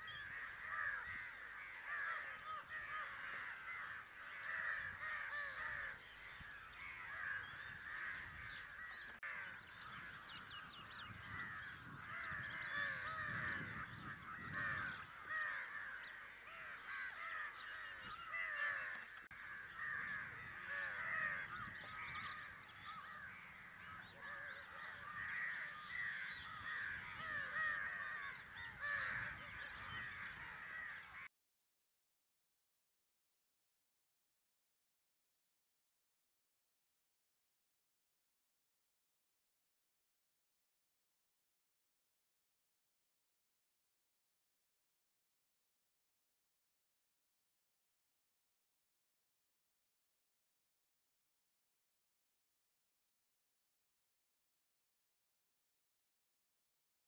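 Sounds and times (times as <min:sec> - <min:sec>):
crows cawing: 0:00.0 - 0:31.3.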